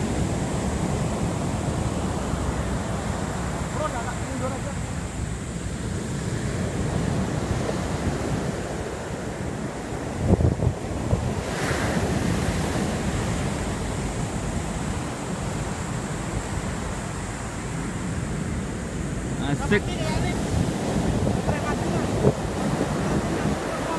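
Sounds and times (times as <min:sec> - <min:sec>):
surf breaking on beach: 0:00.0 - 0:23.9
wind rumbling on microphone: 0:00.0 - 0:23.9.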